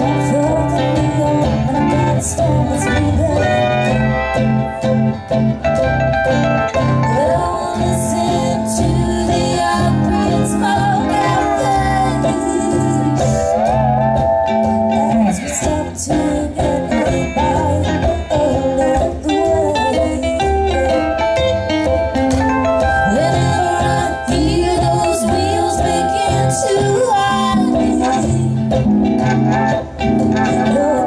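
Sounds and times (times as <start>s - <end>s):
woman singing: 0.0s - 4.2s, 7.0s - 13.5s, 14.8s - 21.3s, 22.8s - 28.7s, 30.4s - 31.0s
acoustic guitar: 0.0s - 31.0s
mandolin: 0.0s - 31.0s
upright bass: 0.0s - 31.0s.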